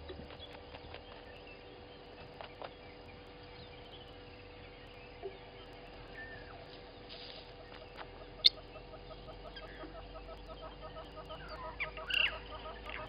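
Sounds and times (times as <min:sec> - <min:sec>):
birds scratching through dry dung: 0:05.9 - 0:08.6.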